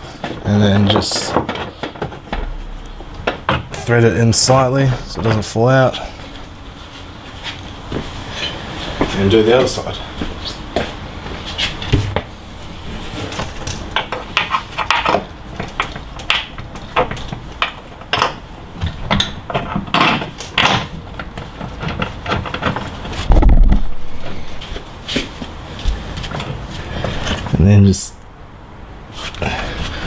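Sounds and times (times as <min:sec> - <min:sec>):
heavy low thump: 0:23.3 - 0:24.6.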